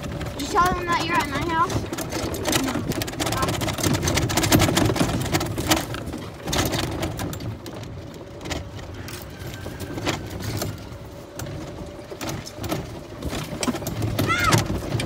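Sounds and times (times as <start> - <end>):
cart body rattling and knocking: 0.0 - 15.0
golf cart driving: 0.0 - 15.0.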